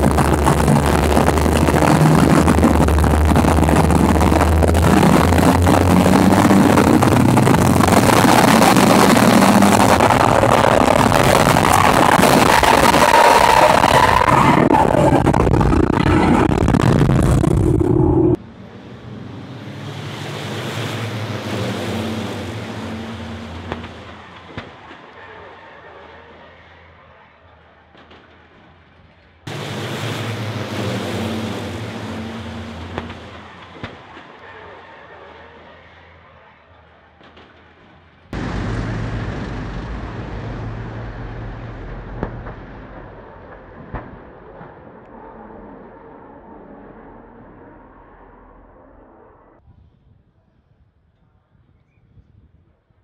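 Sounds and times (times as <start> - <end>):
truck diesel engines pulling away: 0.0 - 28.9, 29.5 - 49.6
sharp crack: 32.6 - 34.3, 38.4 - 45.1
trucks colliding knocks: 38.4 - 45.0.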